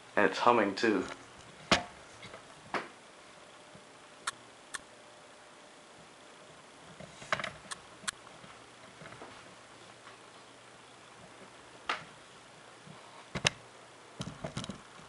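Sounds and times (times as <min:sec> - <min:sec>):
fluorescent bulb hum: 0:00.0 - 0:15.0.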